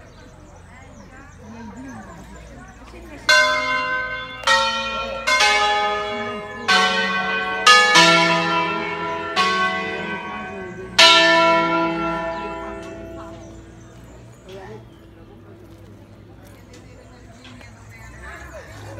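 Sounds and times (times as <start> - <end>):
church bells ringing a melody: 3.1 - 15.8.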